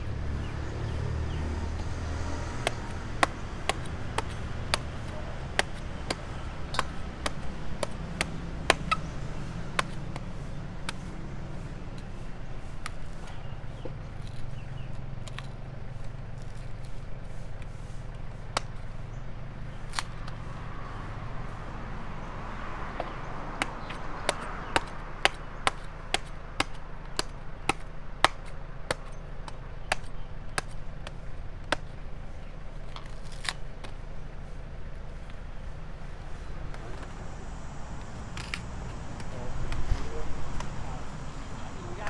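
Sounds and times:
knife chopping fruit: 1.7 - 18.9, 22.5 - 34.1, 38.2 - 41.6.

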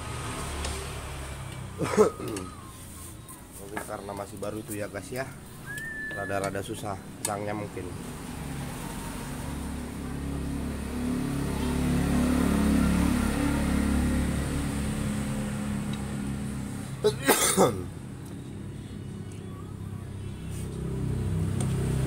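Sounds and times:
vehicle engine humming: 0.0 - 22.0.

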